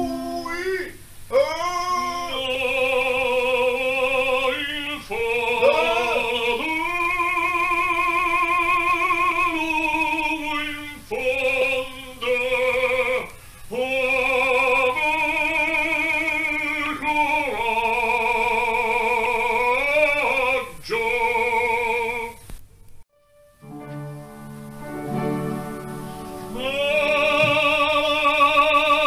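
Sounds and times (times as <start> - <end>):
man singing operatic phrase: 0.0 - 22.4, 26.5 - 29.0.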